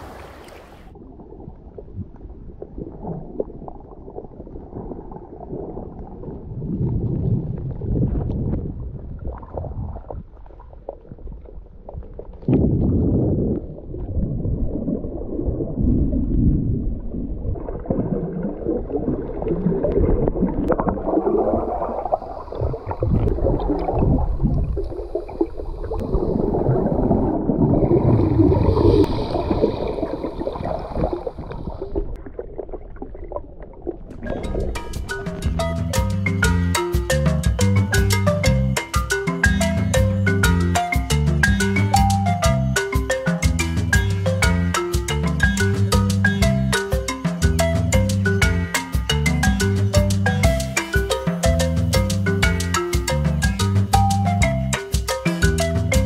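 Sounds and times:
underwater rumbling and gurgling: 0:00.0 - 0:36.5.

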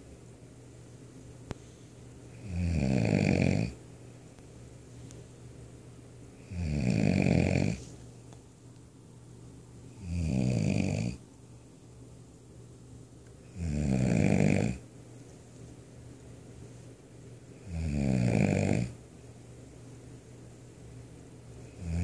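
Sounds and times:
person snoring loudly: 0:02.4 - 0:03.8, 0:06.5 - 0:07.8, 0:10.0 - 0:11.2, 0:13.5 - 0:14.8, 0:17.6 - 0:19.0, 0:21.8 - 0:22.0.

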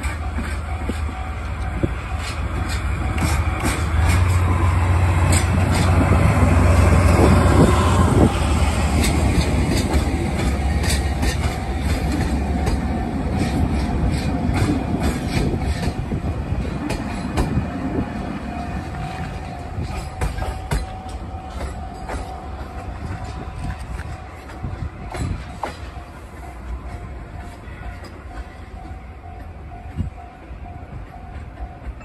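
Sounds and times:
diesel locomotive engine drone: 0:00.0 - 0:32.0
train wheels clicking over rail joints: 0:00.0 - 0:32.0.

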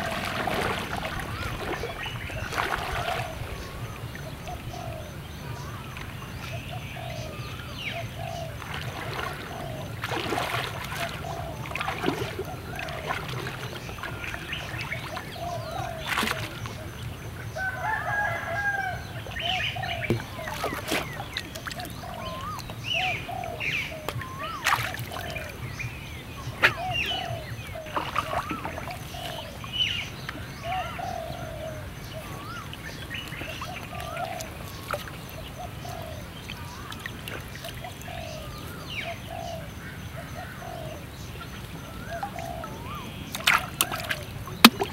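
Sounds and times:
branches clicking in water: 0:00.0 - 0:03.4, 0:08.6 - 0:14.2, 0:16.0 - 0:16.7, 0:24.0 - 0:25.5, 0:43.3 - 0:44.9
splashes in shallow water: 0:00.0 - 0:39.6, 0:41.2 - 0:44.9
chickens and birds calling: 0:00.0 - 0:44.9
crow-like call: 0:17.6 - 0:21.1.

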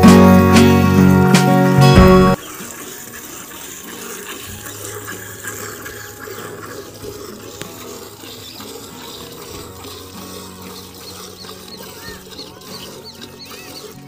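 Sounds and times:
milk squirting into steel bucket: 0:02.4 - 0:14.0.

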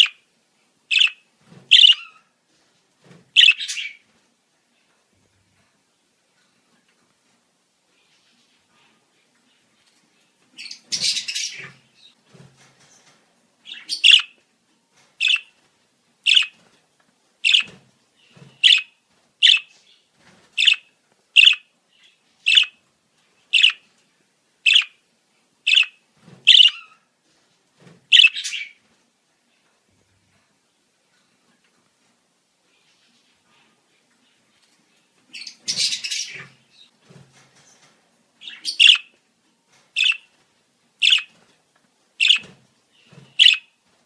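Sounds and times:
budgerigar chirping: 0:00.0 - 0:00.2, 0:00.9 - 0:02.2, 0:03.4 - 0:04.0, 0:13.7 - 0:14.4, 0:15.2 - 0:15.5, 0:16.3 - 0:16.6, 0:17.4 - 0:17.7, 0:18.6 - 0:19.7, 0:20.6 - 0:21.7, 0:22.4 - 0:22.8, 0:23.6 - 0:23.8, 0:24.7 - 0:25.0, 0:25.7 - 0:27.0, 0:28.1 - 0:28.8, 0:38.4 - 0:39.1, 0:40.0 - 0:40.3, 0:41.0 - 0:41.3, 0:42.2 - 0:42.5, 0:43.3 - 0:43.7.

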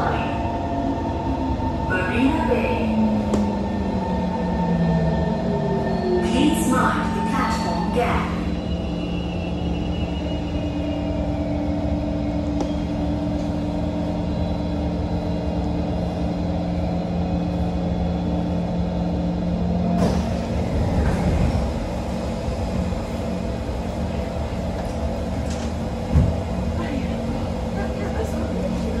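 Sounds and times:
metro car equipment humming: 0:00.0 - 0:29.0
train doors sliding open: 0:19.9 - 0:26.7.

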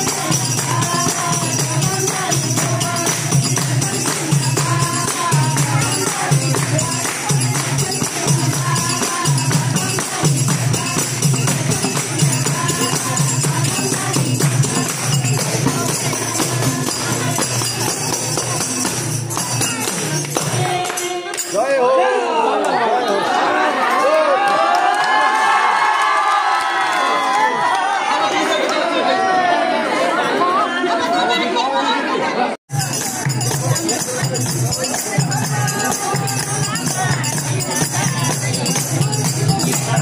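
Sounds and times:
hand clapping: 0:00.0 - 0:13.2, 0:13.9 - 0:21.6
repeating drum beat: 0:00.0 - 0:21.6, 0:32.7 - 0:40.0
jingling metal percussion: 0:00.0 - 0:22.1, 0:32.7 - 0:40.0
voices singing: 0:00.0 - 0:24.5, 0:27.7 - 0:40.0.

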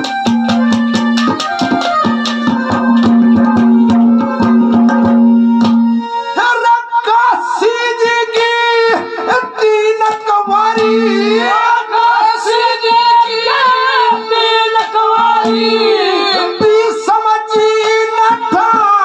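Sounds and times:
man singing through loudspeakers: 0:06.3 - 0:19.0.

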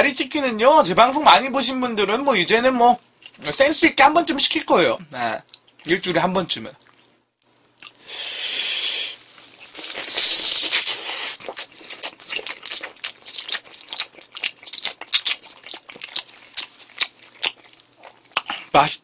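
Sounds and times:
wet chewing with mouth clicks: 0:06.8 - 0:07.1, 0:07.8 - 0:08.0, 0:09.2 - 0:18.7
loud hissing sucks: 0:08.0 - 0:09.2, 0:10.0 - 0:11.4
biting and tearing chicken: 0:09.6 - 0:18.7.

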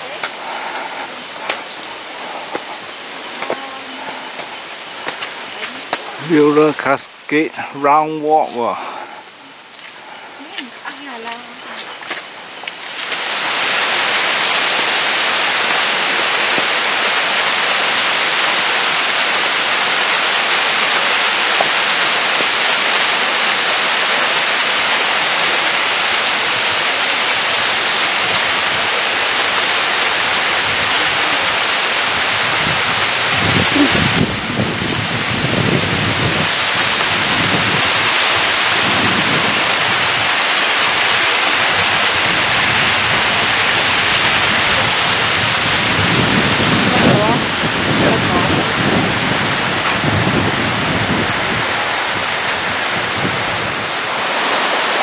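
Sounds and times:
waterfall crashing on rocks: 0:00.0 - 0:55.0
low thumps: 0:49.8 - 0:50.6.

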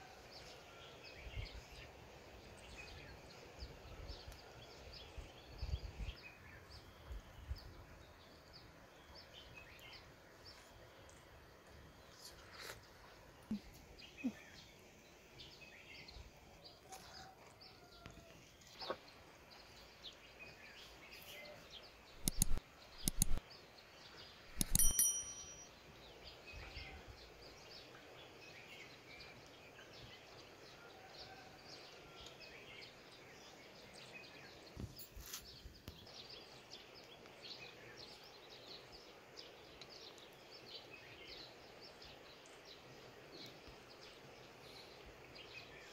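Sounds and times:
faint birds chirping: 0:00.0 - 0:45.9
short ringing clink: 0:24.5 - 0:25.7.

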